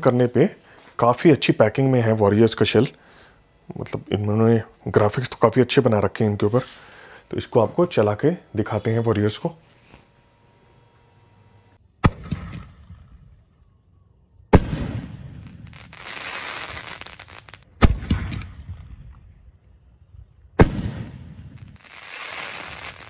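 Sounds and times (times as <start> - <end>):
crackling hissing firework stars: 0.0 - 8.0, 9.3 - 13.7, 14.4 - 23.0
firework launch thump: 17.8 - 18.9, 20.6 - 21.6.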